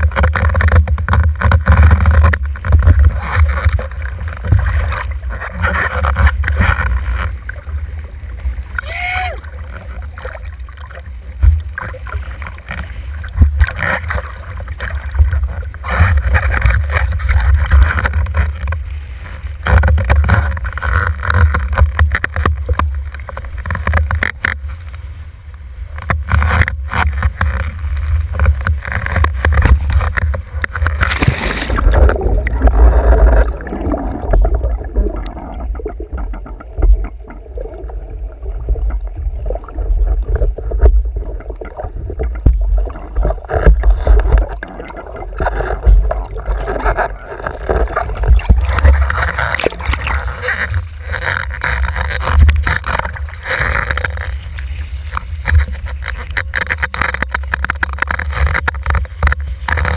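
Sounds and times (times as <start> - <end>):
muffled underwater gurgling: 0.0 - 24.9, 25.7 - 59.9
water rushing and slapping: 0.0 - 59.9
loud splash: 30.9 - 35.2.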